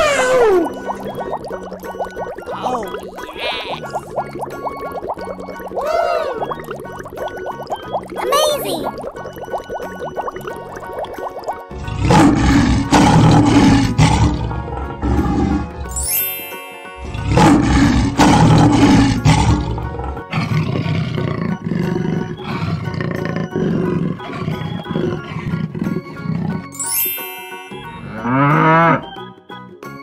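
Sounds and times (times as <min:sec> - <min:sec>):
children's background music: 0:00.0 - 0:30.0
cartoon big cats roaring: 0:11.8 - 0:15.8, 0:17.1 - 0:26.7.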